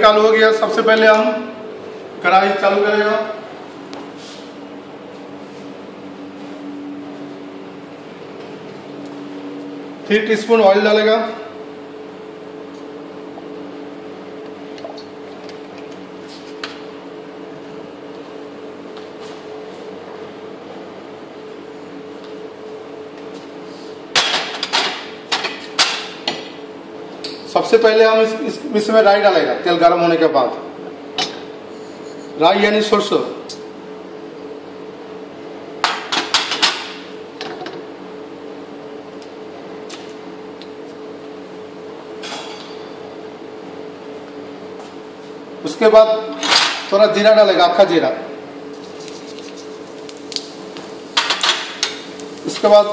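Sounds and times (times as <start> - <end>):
steady hum: 0.0 - 52.9
seeds spluttering in hot oil: 48.7 - 52.7.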